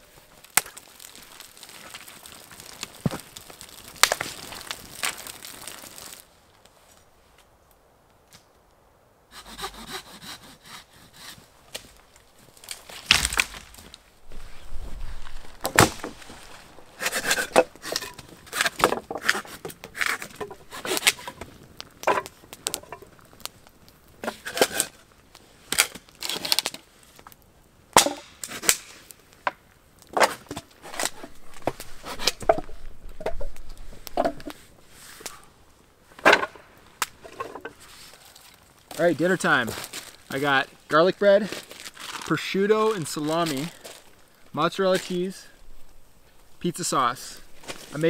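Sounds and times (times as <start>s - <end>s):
wood cracking: 0.0s - 7.0s, 9.4s - 48.0s
hand saw rasping through wood: 9.3s - 11.4s.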